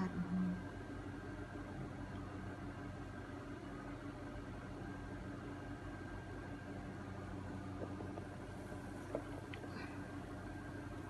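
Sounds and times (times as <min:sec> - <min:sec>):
low mechanical hum with tones: 0:00.0 - 0:11.0.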